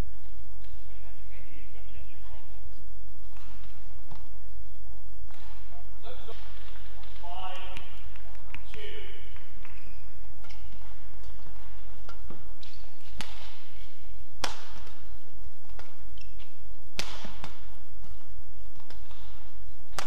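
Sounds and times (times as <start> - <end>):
racket striking shuttlecock: 3.3 - 4.4, 5.2 - 5.7, 9.2 - 20.0.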